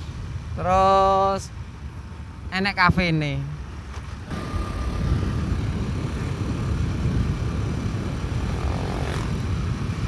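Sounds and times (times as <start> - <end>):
wind rumble on microphone: 0.0 - 10.0
motorcycle engine droning: 4.3 - 10.0.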